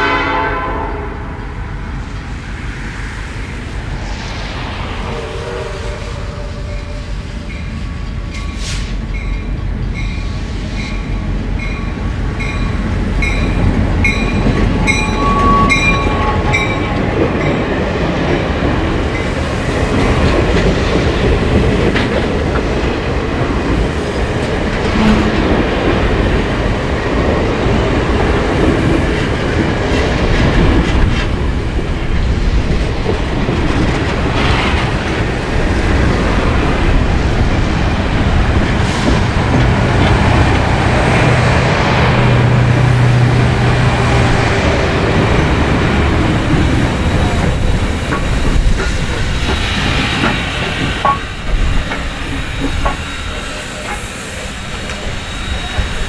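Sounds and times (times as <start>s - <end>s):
train coaches rumbling past: 0.0s - 56.0s
locomotive bell ringing: 6.5s - 17.6s, 51.0s - 51.5s
wheels clicking over rail joints: 45.2s - 56.0s.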